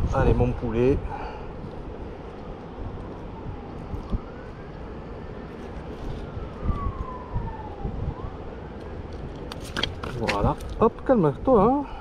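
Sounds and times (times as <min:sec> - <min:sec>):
faint siren wailing: 0:01.2 - 0:09.3.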